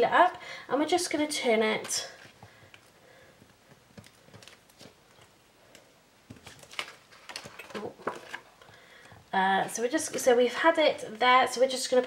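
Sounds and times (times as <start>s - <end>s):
sharp taps and crinkles: 1.8s - 10.3s
paper and plastic sheet rustling: 6.3s - 8.6s.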